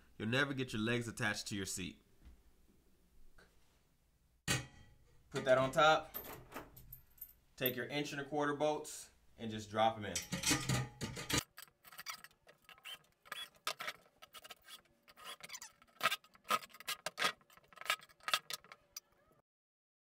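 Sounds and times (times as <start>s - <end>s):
metal bolts clinking: 5.3s - 7.8s, 10.2s - 12.7s.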